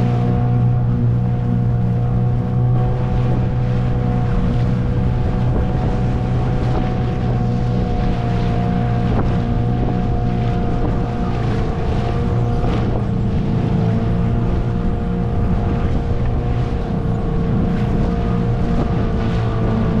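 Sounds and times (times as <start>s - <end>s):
outboard motor droning: 0.0s - 20.0s
wind buffeting microphone: 0.0s - 20.0s.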